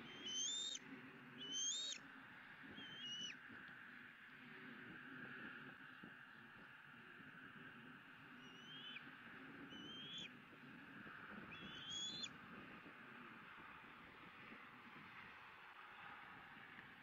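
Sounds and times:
eagle whistled calls: 0.0s - 0.8s, 1.4s - 2.0s, 2.7s - 3.4s, 8.4s - 9.0s, 9.7s - 10.3s, 11.5s - 12.3s.

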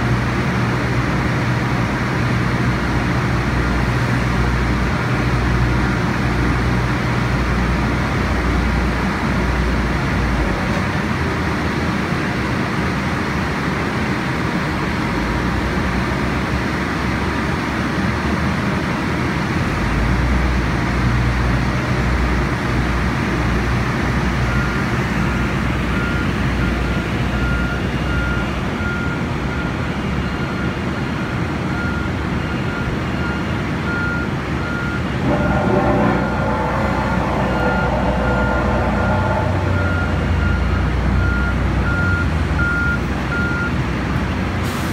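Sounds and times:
diesel engines rumbling: 0.0s - 44.9s
reversing alarm beeping: 24.5s - 43.7s
whining tone: 34.7s - 42.1s.

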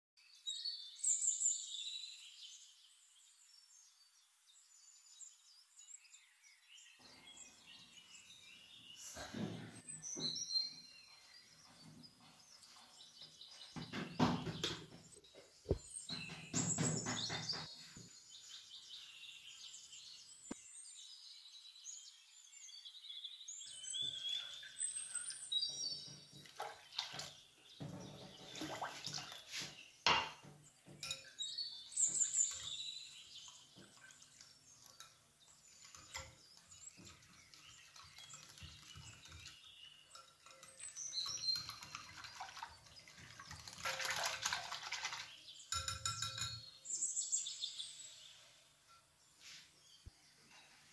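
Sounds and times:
small birds chirping: 0.2s - 50.9s
whisk stirring batter: 33.8s - 45.3s
water pouring into bowl: 37.0s - 45.4s
dry semolina pouring: 40.3s - 45.4s.

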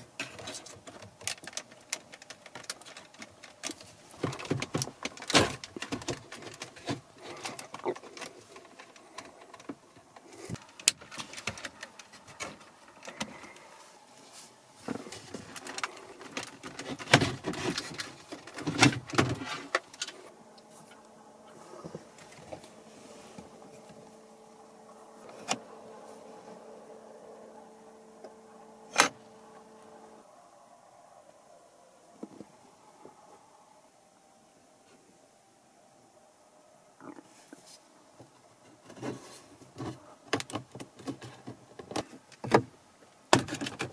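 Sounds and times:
faint steady hum: 0.0s - 43.9s
plastic clicks and rattles: 0.2s - 13.5s, 39.8s - 42.7s, 43.3s - 43.9s.

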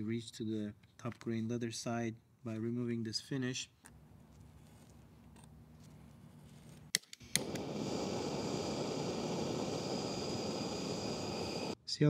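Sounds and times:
gas torch ignition clicks: 6.9s - 11.8s
torch flame hissing: 7.2s - 11.8s.

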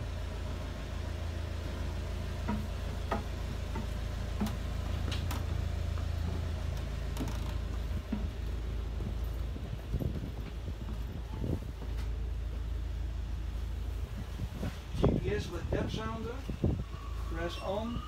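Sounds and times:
diesel engine idling: 0.0s - 17.9s
footsteps on deck: 2.2s - 14.5s.

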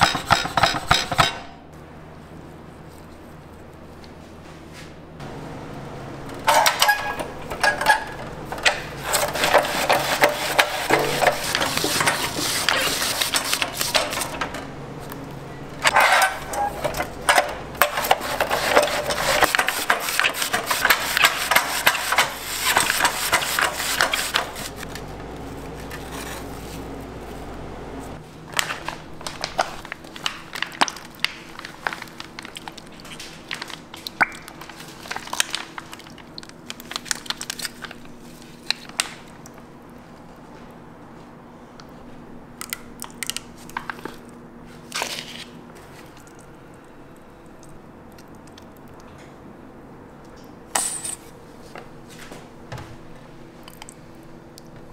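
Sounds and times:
steady low hum: 0.0s - 30.5s.

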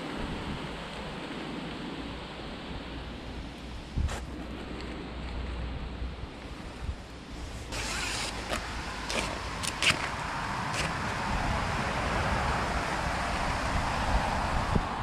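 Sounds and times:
wind hiss: 0.0s - 15.0s
microphone handling noise: 3.9s - 5.3s
buckle clicks and scrapes: 7.7s - 10.1s
strap rustling: 7.7s - 11.0s.

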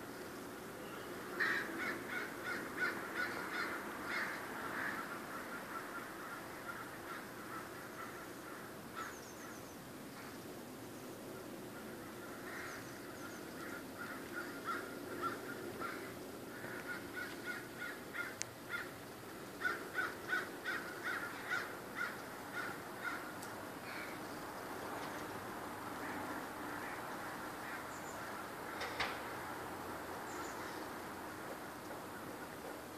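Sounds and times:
crows cawing: 1.3s - 9.6s, 11.4s - 19.0s, 19.6s - 24.3s, 25.9s - 29.4s.

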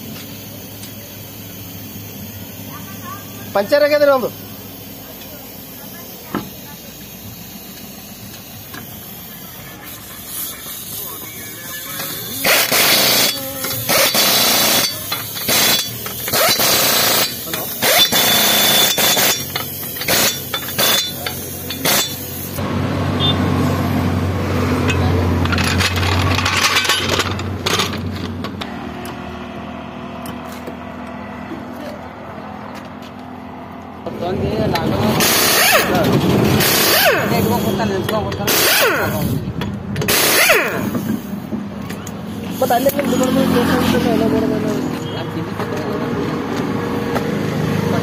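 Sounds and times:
compressed air tool spurts: 0.0s - 22.6s, 35.2s - 37.4s, 38.5s - 39.4s, 40.0s - 41.4s.

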